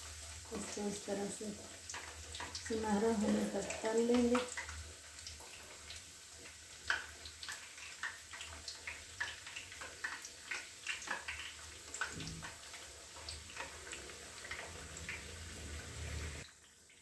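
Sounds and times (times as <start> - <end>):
oil bubbling and sizzling: 0.0 - 17.0
sharp crackles and pops: 4.1 - 15.2.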